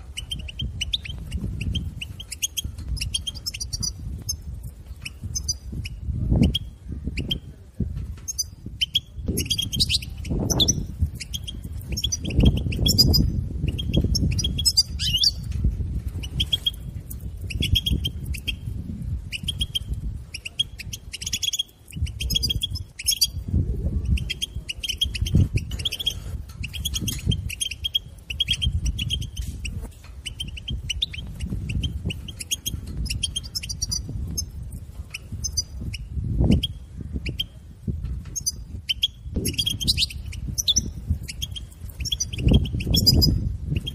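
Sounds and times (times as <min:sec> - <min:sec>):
goldfinch twittering: 0:08.3 - 0:15.5, 0:30.2 - 0:34.5, 0:35.1 - 0:37.5, 0:38.4 - 0:43.9.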